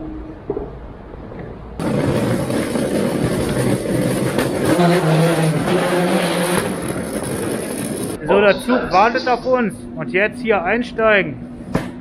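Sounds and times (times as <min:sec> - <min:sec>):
trailer wheels rolling on tiles: 0:01.8 - 0:08.2.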